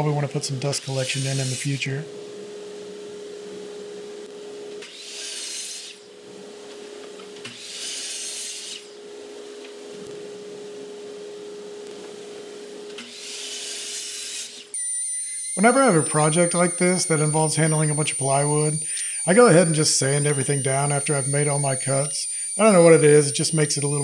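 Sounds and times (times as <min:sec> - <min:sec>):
miter saw cutting plywood: 0:00.0 - 0:02.0, 0:04.8 - 0:06.1, 0:07.4 - 0:09.0, 0:13.0 - 0:24.0
steady hum: 0:00.0 - 0:24.0.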